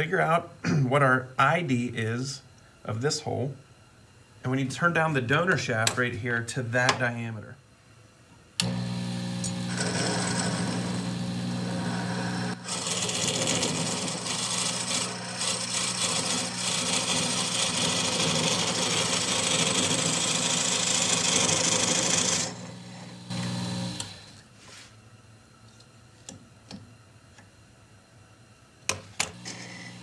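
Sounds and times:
lathe motor humming: 8.6s - 24.4s, 29.3s - 30.0s
tool rasping on spinning wood: 9.7s - 23.2s.

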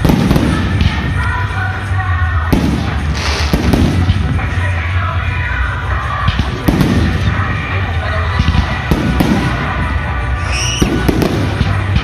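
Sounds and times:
firework rising whistle: 10.3s - 11.3s.

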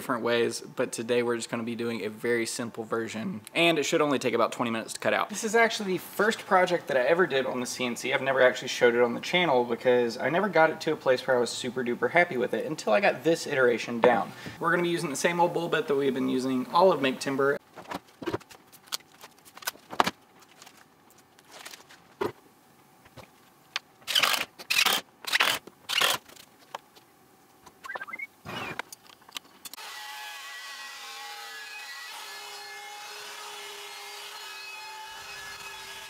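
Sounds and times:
tape ripping off roll: 24.0s - 26.6s
router cutting wood: 29.8s - 36.0s.

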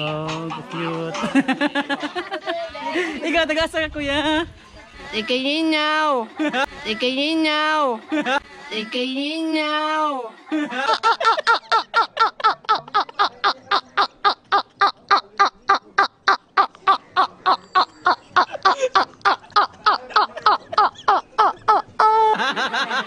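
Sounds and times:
man laughing hard: 10.5s - 15.0s, 17.5s - 23.0s.

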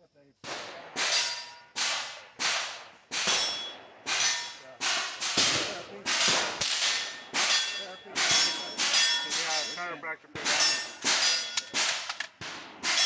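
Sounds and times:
gunshots: 0.4s - 13.0s
metallic ring of steel targets: 0.9s - 2.2s, 3.1s - 12.1s.

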